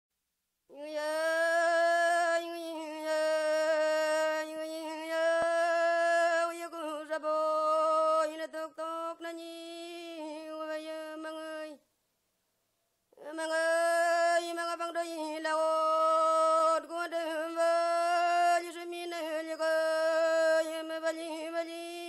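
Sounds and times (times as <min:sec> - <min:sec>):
solo voice singing lullaby: 0:00.7 - 0:11.8, 0:13.2 - 0:22.0.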